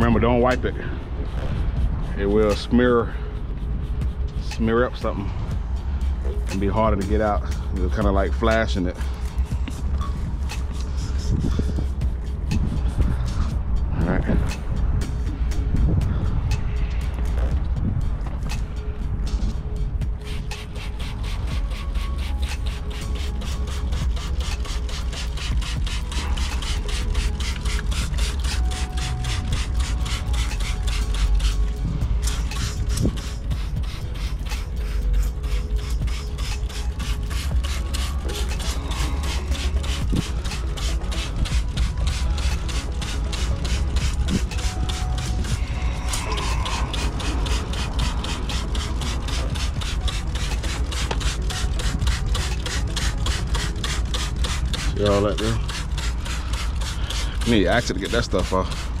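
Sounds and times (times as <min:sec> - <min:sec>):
low rumble: 0:00.0 - 0:22.8, 0:25.5 - 0:52.4
brush scrubbing metal wheel: 0:06.5 - 0:13.4, 0:20.2 - 0:59.0
spray bottle spraying: 0:07.5 - 0:13.5, 0:20.2 - 0:59.0.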